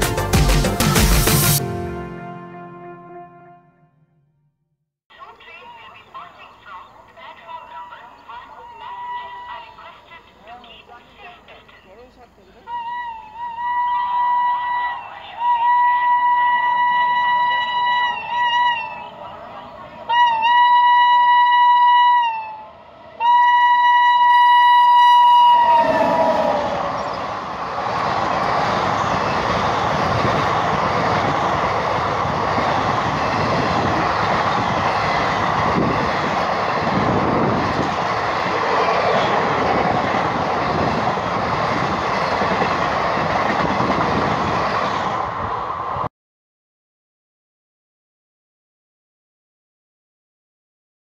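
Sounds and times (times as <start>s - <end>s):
train horn blaring: 1.6s - 4.5s, 12.7s - 27.8s, 32.7s - 42.4s
train wheels roaring on rails: 6.1s - 46.1s.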